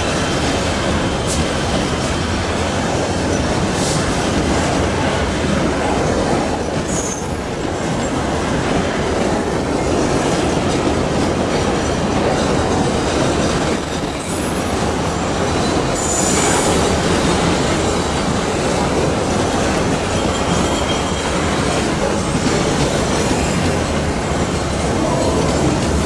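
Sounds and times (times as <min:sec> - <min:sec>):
train wheels rumbling on rails: 0:00.0 - 0:26.0
high-pitched wheel squeals: 0:20.1 - 0:21.6.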